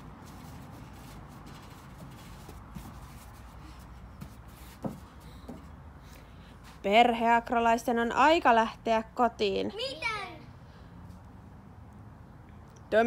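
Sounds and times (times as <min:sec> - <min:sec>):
bare feet shuffling on wood: 0:00.0 - 0:07.0
low background noise: 0:00.0 - 0:13.0.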